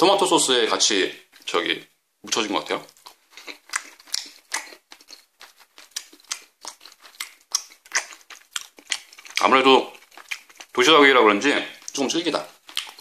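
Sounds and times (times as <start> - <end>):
person chewing food: 2.8 - 13.0.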